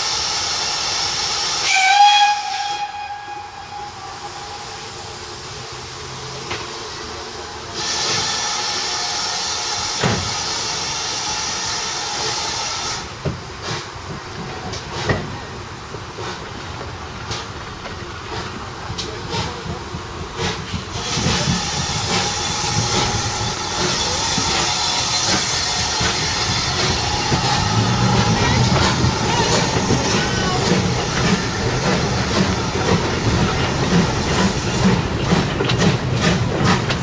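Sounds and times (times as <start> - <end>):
steam locomotive venting steam: 0.0 - 37.0
steam whistle blast: 1.4 - 5.2
train knocks: 9.9 - 10.4, 13.2 - 37.0.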